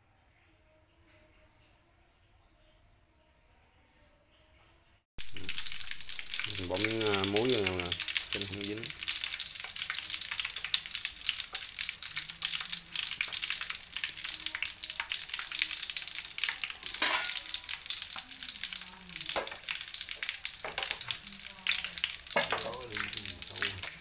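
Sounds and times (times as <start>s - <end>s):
oil sizzling in a wok: 5.2s - 24.0s.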